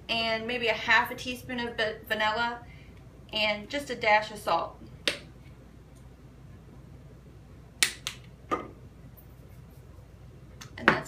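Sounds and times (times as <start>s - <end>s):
bottles knocking on countertop: 8.5s - 8.8s.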